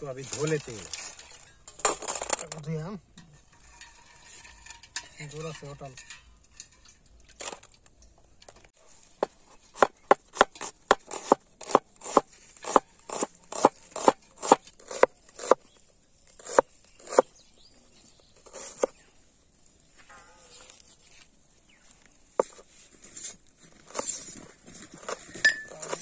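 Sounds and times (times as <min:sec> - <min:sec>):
cleaver chopping on wooden board: 0:09.8 - 0:15.6, 0:16.4 - 0:17.3.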